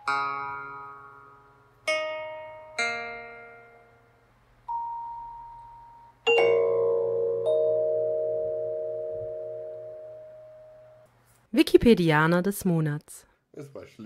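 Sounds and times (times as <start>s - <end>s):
struck ringing notes jingle: 6.3s - 11.0s.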